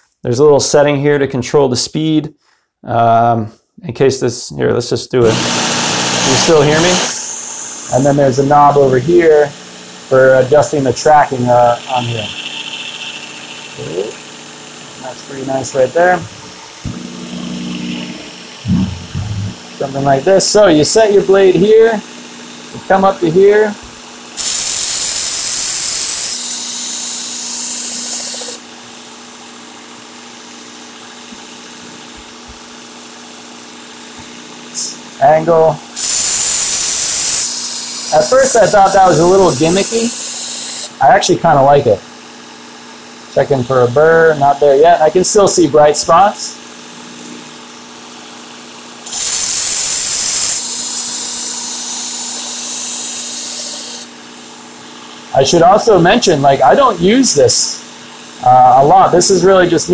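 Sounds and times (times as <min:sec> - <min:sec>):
motor humming: 0:05.2 - 0:22.9, 0:23.9 - 0:28.7, 0:36.0 - 0:41.0, 0:49.1 - 0:54.1
abrasive belt grinding steel blade: 0:10.5 - 0:14.4, 0:26.2 - 0:28.6, 0:36.0 - 0:40.9, 0:49.1 - 0:54.1.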